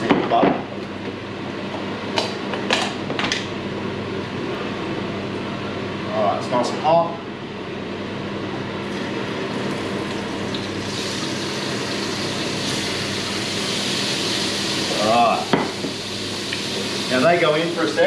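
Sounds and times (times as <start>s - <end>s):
steady hum: 0.0s - 18.0s
clams sizzling in a frying pan: 11.2s - 18.0s.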